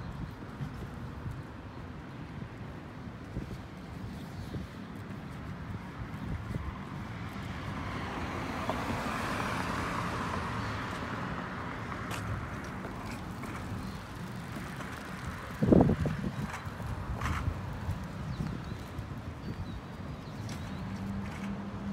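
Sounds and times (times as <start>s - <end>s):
vehicle passing: 7.2s - 17.5s.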